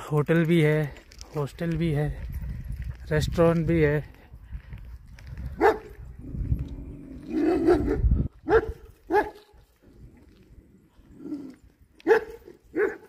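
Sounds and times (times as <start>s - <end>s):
low rumble: 4.0s - 8.4s
dog barking: 5.6s - 6.0s, 7.4s - 9.6s, 12.0s - 13.0s.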